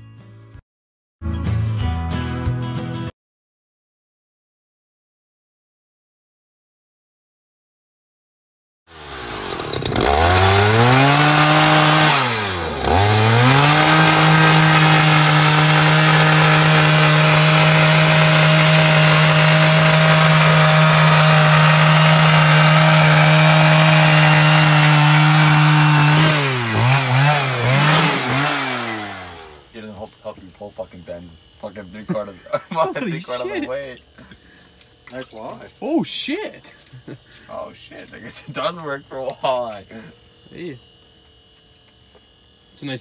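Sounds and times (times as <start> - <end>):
ice auger engine revving: 8.9 - 29.9, 31.0 - 40.8.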